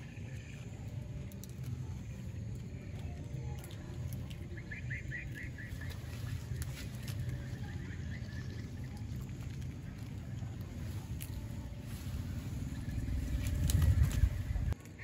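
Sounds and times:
small bird chirping: 0.0s - 11.4s
low outdoor rumble: 0.0s - 15.0s.

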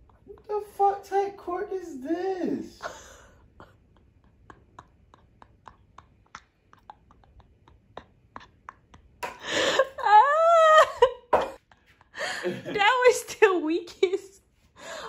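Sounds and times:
person exclaiming: 0.8s - 2.8s.

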